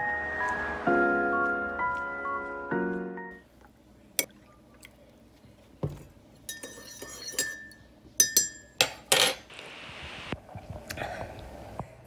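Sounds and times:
spoon clinking in mug: 0:06.5 - 0:09.4.

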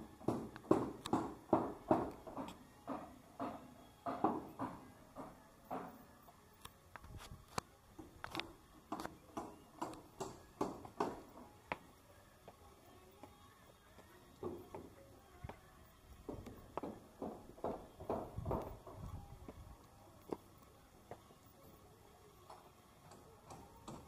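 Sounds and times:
footsteps on stone stairs: 0:16.2 - 0:18.8, 0:20.2 - 0:21.3.

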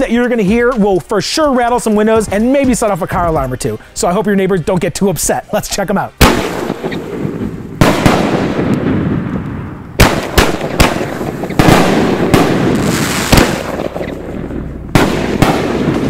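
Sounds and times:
firework shells bursting with booms: 0:06.2 - 0:16.0
continuous rumble: 0:13.6 - 0:16.0.

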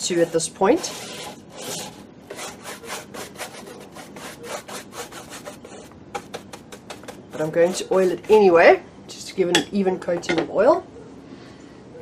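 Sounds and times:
paintbrush scrubbing canvas: 0:00.0 - 0:08.5.

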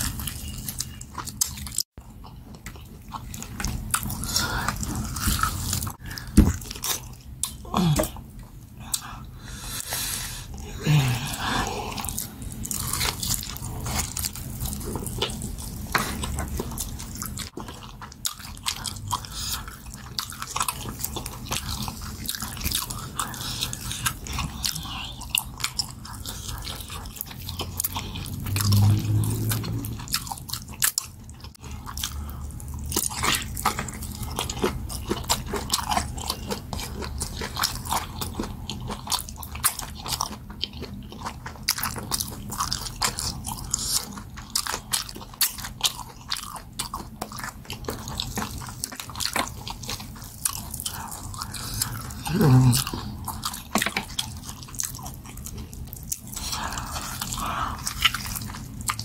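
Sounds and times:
person biting and chewing meat: 0:00.0 - 0:59.0
person humming low: 0:07.6 - 0:08.2, 0:10.6 - 0:12.0, 0:52.2 - 0:53.2.

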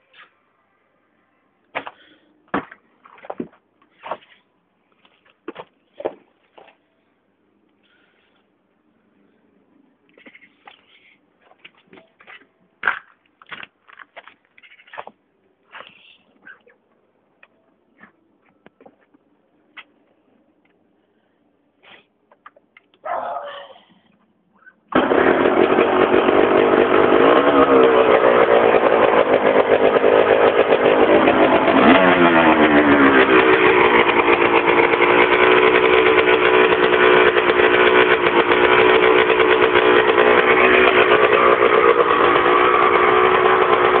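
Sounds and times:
dirt bike engine revving: 0:24.9 - 0:44.0.

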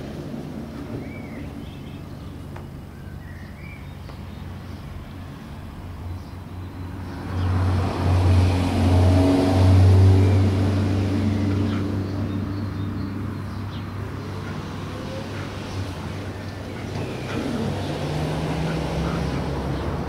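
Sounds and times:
vehicle engine passing by: 0:06.6 - 0:20.0.

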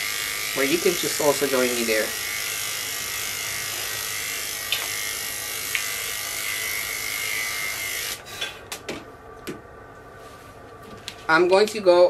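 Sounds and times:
electric clippers buzzing: 0:00.0 - 0:08.3.

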